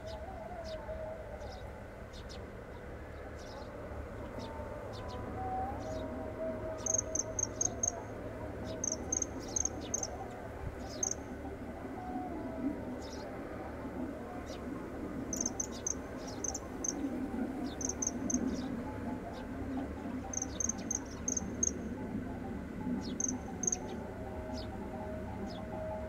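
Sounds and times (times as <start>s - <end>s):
low outdoor background: 0.0s - 26.0s
cricket chirping: 6.8s - 8.0s, 8.7s - 10.2s, 10.9s - 11.3s, 15.3s - 18.6s, 20.3s - 21.9s, 23.1s - 23.9s.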